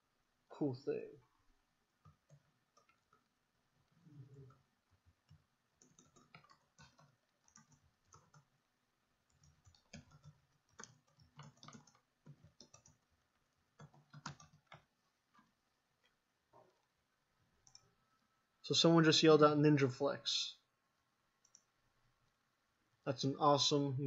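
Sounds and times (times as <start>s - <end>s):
typing on keyboard: 2.0s - 3.4s, 4.3s - 8.5s, 9.3s - 15.5s, 17.6s - 17.9s.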